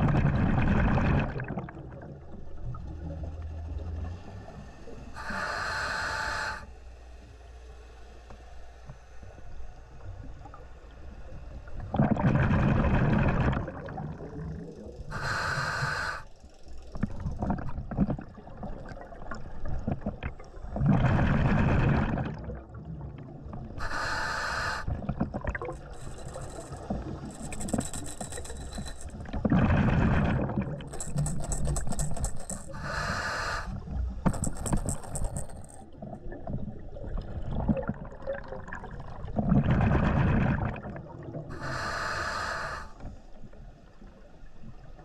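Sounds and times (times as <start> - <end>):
exhaled bubbles rushing: 0.0 - 2.7, 11.8 - 14.9, 17.0 - 23.8, 24.9 - 32.9, 34.3 - 41.6
regulator inhale hiss: 4.8 - 10.0, 15.0 - 16.6, 23.8 - 25.0, 25.8 - 29.1, 30.9 - 35.5, 41.5 - 43.4.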